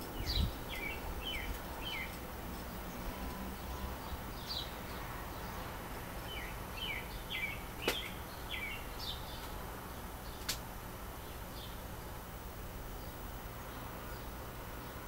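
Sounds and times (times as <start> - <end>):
birds chirping: 0.0 - 15.0
steady low hum: 0.0 - 15.0
sharp clicks: 10.4 - 10.6.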